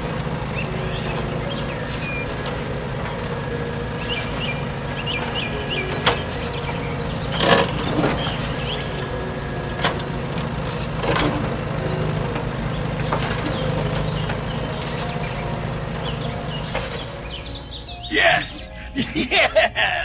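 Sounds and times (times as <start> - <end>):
excavator engine drone: 0.0 - 20.0
short hissing bursts: 1.9 - 2.4, 4.0 - 4.6, 10.7 - 11.0, 13.0 - 13.6, 14.8 - 15.5.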